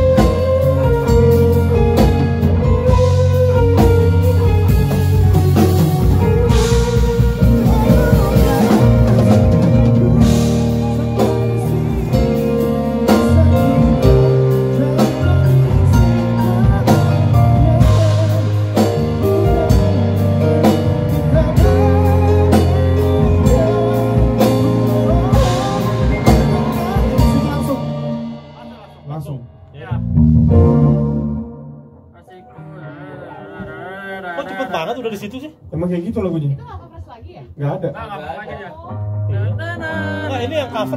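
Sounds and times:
electric guitar: 0:00.0 - 0:28.9
drum kit with cymbal hits: 0:00.0 - 0:31.6
bass notes: 0:00.0 - 0:32.2
synthesizer keyboard chords: 0:00.0 - 0:32.2.

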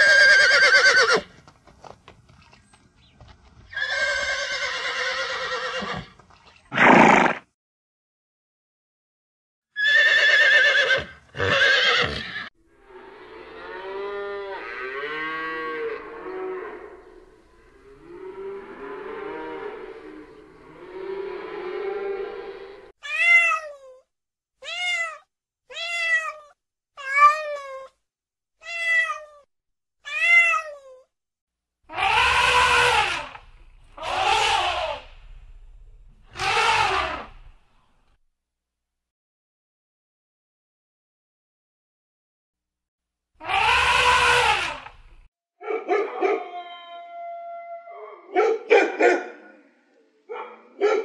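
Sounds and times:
cat meowing: 0:23.0 - 0:24.0, 0:24.6 - 0:27.9, 0:28.6 - 0:29.5, 0:30.1 - 0:31.0
elephant trumpeting: 0:31.9 - 0:35.2, 0:36.3 - 0:37.5, 0:43.4 - 0:44.9
dog barking: 0:45.6 - 0:46.5, 0:48.2 - 0:49.6, 0:50.3 - 0:51.0
dog howling: 0:45.7 - 0:48.4.

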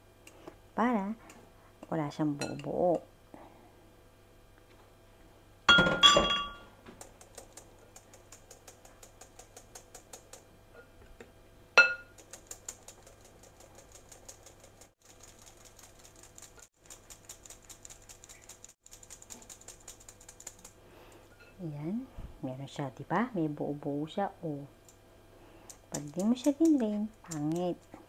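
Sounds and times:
bowl clinking against sieve: 0:05.7 - 0:06.7, 0:11.8 - 0:12.1.

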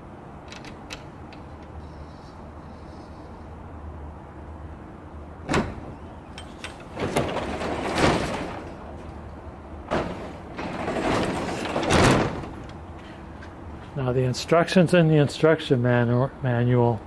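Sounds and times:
release mechanism clunk: 0:05.4 - 0:09.2
garage door rattling on rollers: 0:05.5 - 0:12.7.

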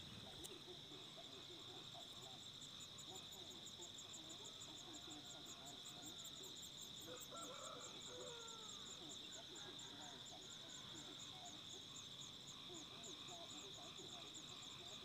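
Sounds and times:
insect chorus droning: 0:00.0 - 0:15.0.

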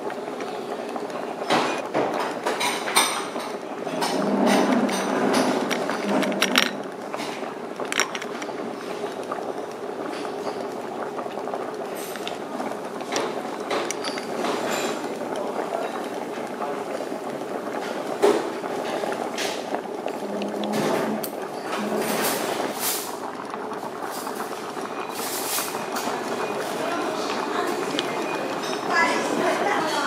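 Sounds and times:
restaurant din: 0:00.3 - 0:30.0
tableware clinking: 0:01.5 - 0:08.5, 0:13.1 - 0:15.2, 0:18.2 - 0:23.1, 0:24.4 - 0:29.3.

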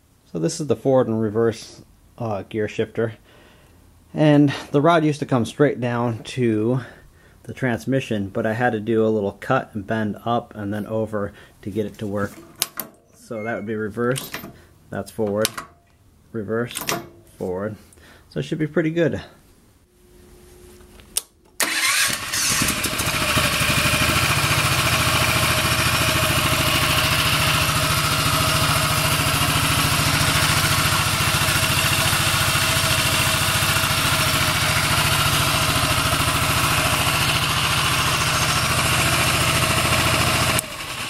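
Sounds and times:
small engine starting and running: 0:21.6 - 0:41.0.

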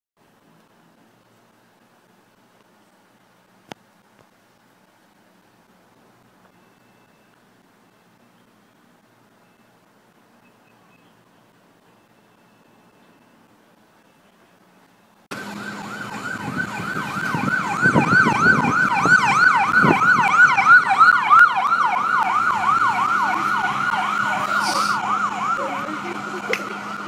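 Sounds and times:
siren in fast yelp: 0:15.3 - 0:27.0.

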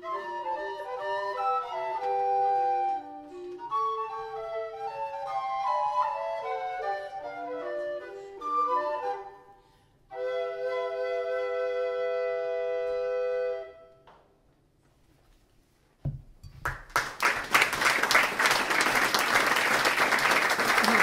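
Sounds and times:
recorder trio playing: 0:00.0 - 0:09.5
audience applause: 0:16.6 - 0:21.0.

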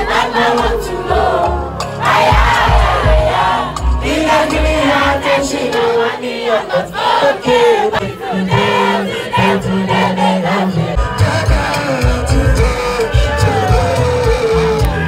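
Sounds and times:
live band music with bass and drums: 0:00.0 - 0:05.9, 0:10.8 - 0:15.0
crowd singing along: 0:00.0 - 0:15.0
person singing: 0:00.0 - 0:15.0.

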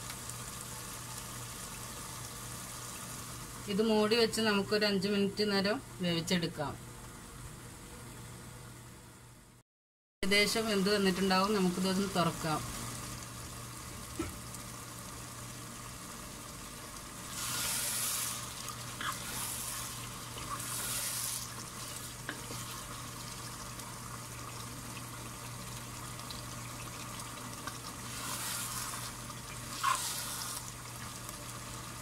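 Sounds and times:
curry sizzling in a pot: 0:00.0 - 0:06.0, 0:10.3 - 0:32.0
wooden spatula stirring: 0:17.3 - 0:23.5, 0:27.6 - 0:30.6.

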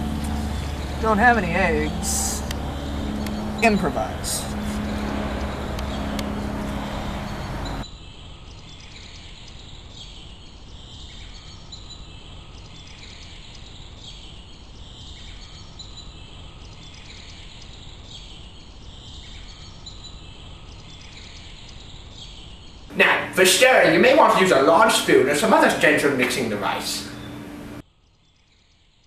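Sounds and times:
steady low rumble: 0:00.0 - 0:07.8.

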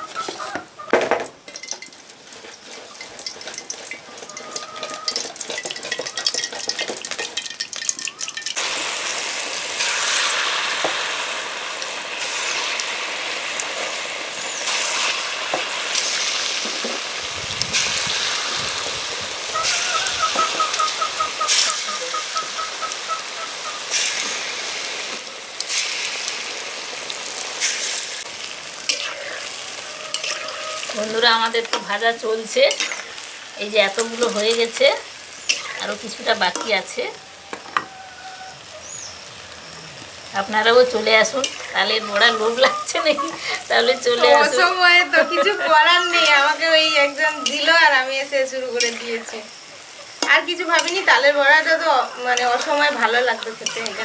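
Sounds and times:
fritters sizzling in hot oil: 0:00.0 - 0:54.0.

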